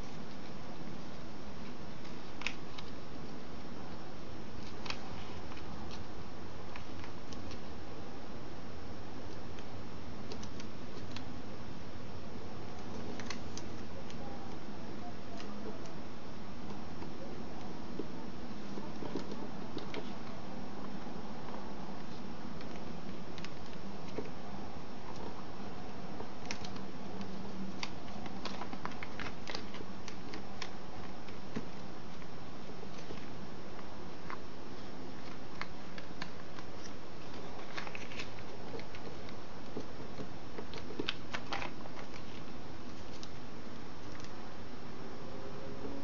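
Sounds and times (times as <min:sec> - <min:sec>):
paper crinkling and creasing: 0:04.6 - 0:06.1, 0:17.0 - 0:21.0, 0:26.2 - 0:43.4.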